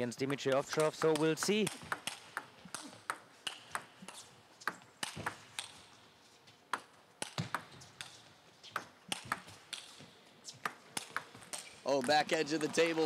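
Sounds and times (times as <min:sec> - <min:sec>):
table tennis ball ticking: 0:00.1 - 0:05.8.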